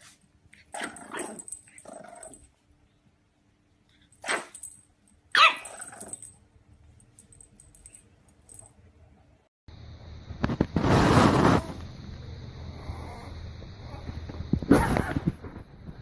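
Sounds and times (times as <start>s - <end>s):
puppy barking: 5.3s - 6.2s.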